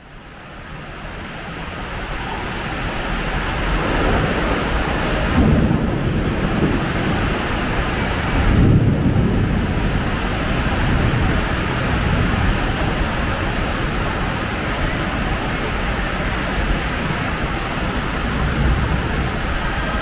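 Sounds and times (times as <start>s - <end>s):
heavy rain: 0.0s - 20.0s
low thunder rumbles: 2.0s - 15.0s, 18.0s - 20.0s.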